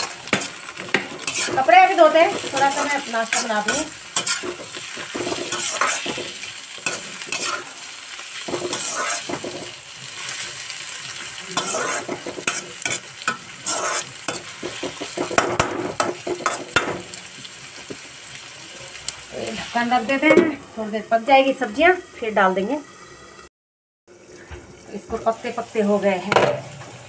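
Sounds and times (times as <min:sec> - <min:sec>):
metal spatula scraping a pan: 0:00.0 - 0:17.0
vegetables sizzling in oil: 0:00.0 - 0:23.5, 0:24.1 - 0:27.0.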